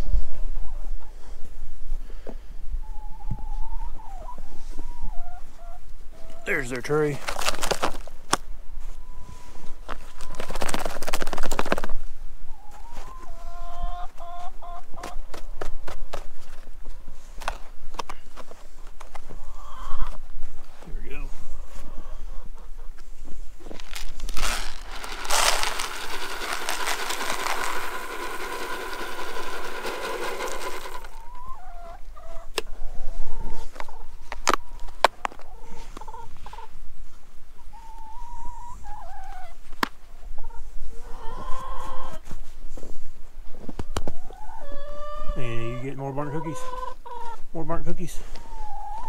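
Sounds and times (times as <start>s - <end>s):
chickens clucking: 2.8s - 6.8s, 12.5s - 15.5s, 18.5s - 20.2s, 20.8s - 23.6s, 25.8s - 42.8s, 43.6s - 49.0s
plastic tray scraping through snow: 23.8s - 29.5s
chicken calling: 24.4s - 36.7s, 40.4s - 42.2s, 44.2s - 47.5s, 48.2s - 49.0s
feed pouring into plastic trough: 24.7s - 31.2s.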